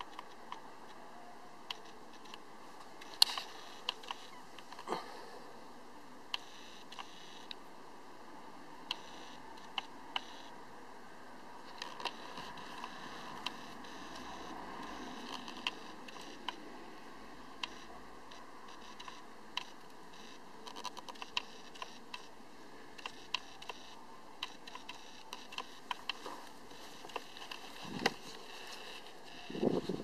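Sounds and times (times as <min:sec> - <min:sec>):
camera handling clicks and ticks: 0:01.7 - 0:02.4, 0:03.0 - 0:04.9, 0:11.7 - 0:16.6, 0:17.6 - 0:22.3, 0:23.0 - 0:29.6.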